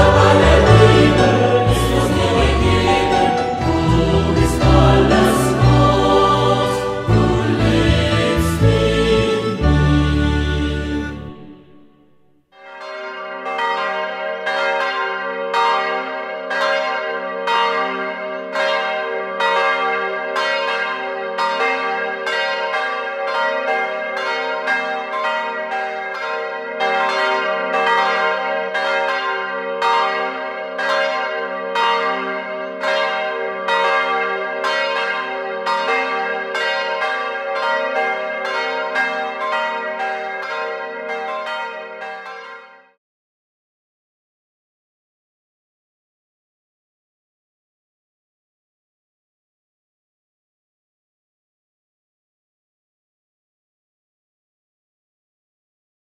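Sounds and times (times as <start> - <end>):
church bells ringing: 0.0 - 11.9, 12.6 - 43.0.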